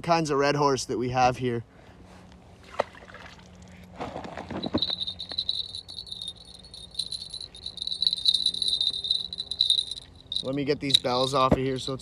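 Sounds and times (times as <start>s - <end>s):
crickets trilling: 4.6s - 12.0s.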